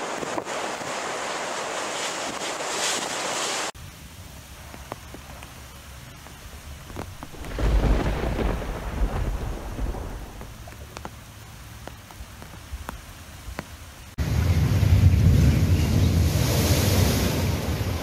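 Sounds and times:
rain hissing: 0.0s - 18.0s
thunder rumbling: 6.4s - 11.0s
surf crashing: 6.9s - 10.8s, 14.7s - 18.0s.

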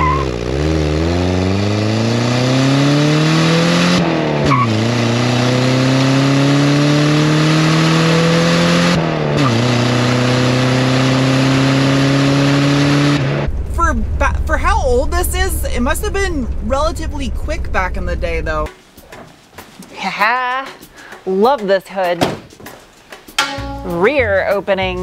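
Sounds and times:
car exhaust accelerating hard: 0.0s - 18.7s.

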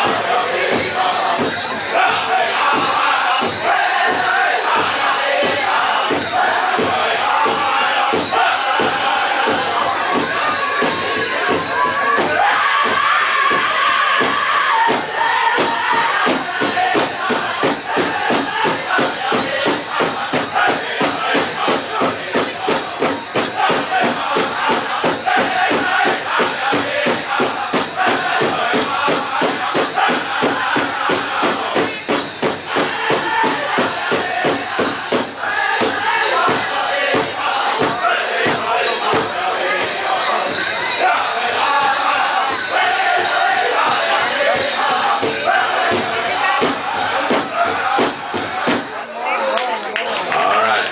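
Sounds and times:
fast steady drumbeat: 0.0s - 49.1s
jingling dancers' bells: 0.0s - 50.9s
singers' high voices: 0.0s - 50.9s.

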